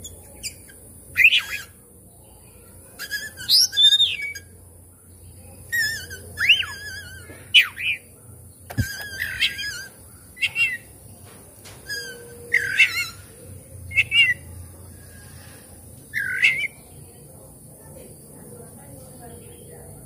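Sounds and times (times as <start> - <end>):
bird singing whistled phrases: 3.0 - 4.5, 5.7 - 8.0, 8.7 - 10.9, 11.8 - 13.2, 13.9 - 14.5, 16.1 - 16.9.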